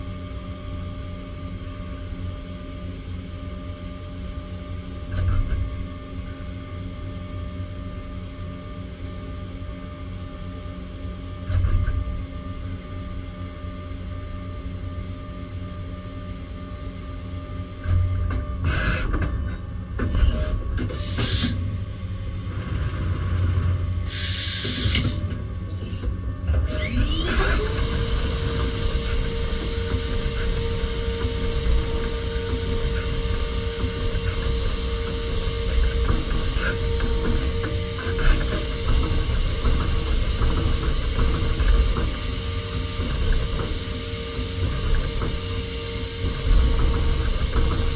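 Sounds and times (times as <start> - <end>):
machine low hum: 0.0 - 47.9
spindle whine: 11.3 - 47.9.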